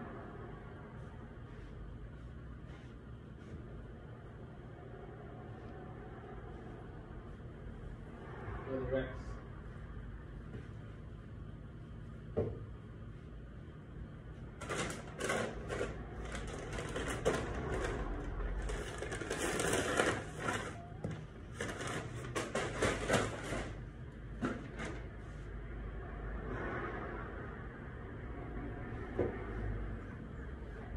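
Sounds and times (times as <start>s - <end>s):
crinkly noise: 14.6s - 23.8s
objects rustling and clattering: 14.6s - 25.4s.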